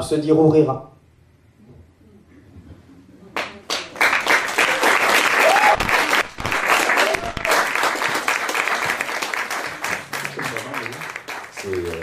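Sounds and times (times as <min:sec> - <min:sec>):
audience applauding: 0:03.4 - 0:12.0.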